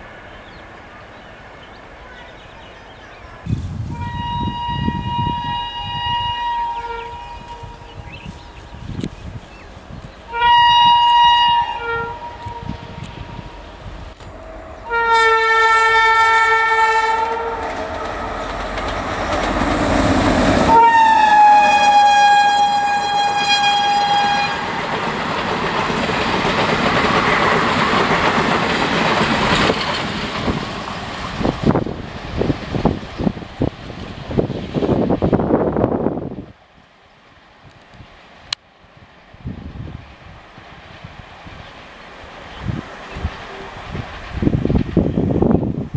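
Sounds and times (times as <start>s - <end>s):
train coaches rumbling and clacking: 0.0s - 45.9s
locomotive horn blasts: 3.8s - 7.9s, 10.3s - 13.6s, 14.4s - 18.3s, 20.7s - 24.8s.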